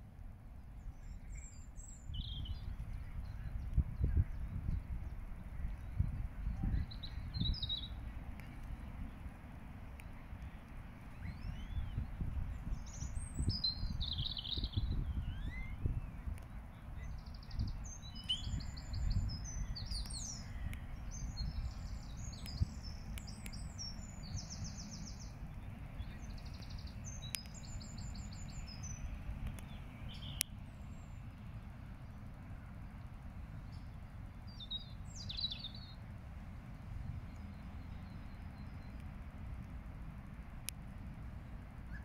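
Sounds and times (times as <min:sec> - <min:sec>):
low background rumble: 0:00.0 - 0:42.0
starlings singing: 0:00.8 - 0:08.0, 0:10.4 - 0:32.4, 0:33.6 - 0:36.1.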